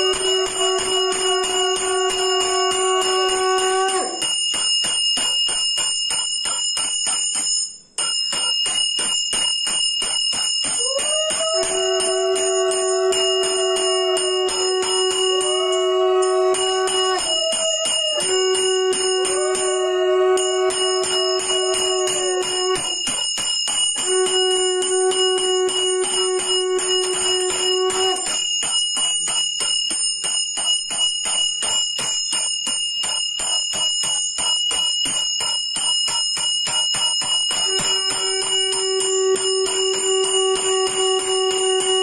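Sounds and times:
long held low tone: 0:00.0 - 0:04.3, 0:10.8 - 0:23.1, 0:24.0 - 0:28.5, 0:37.6 - 0:42.0
hand bell ringing: 0:00.0 - 0:42.0.

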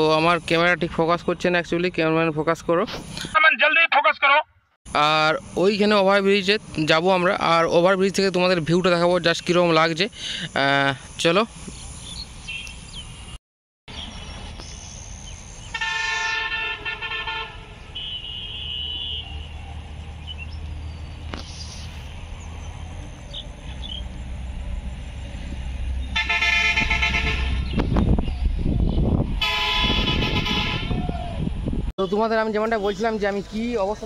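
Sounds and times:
low rumble of traffic: 0:04.2 - 0:34.0
vehicle horns honking: 0:15.7 - 0:19.5, 0:26.1 - 0:27.8, 0:29.4 - 0:31.1.

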